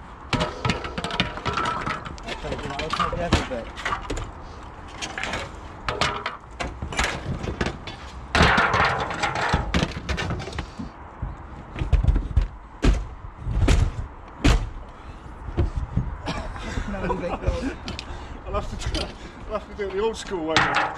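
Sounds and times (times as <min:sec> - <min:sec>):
timber knocking and clattering: 0:00.3 - 0:14.8, 0:20.5 - 0:20.9.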